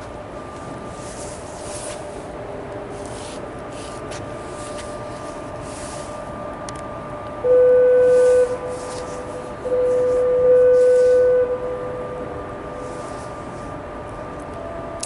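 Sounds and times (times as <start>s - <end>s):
steady rumble with faint hum: 0.0s - 15.0s
horn blast: 7.4s - 12.2s.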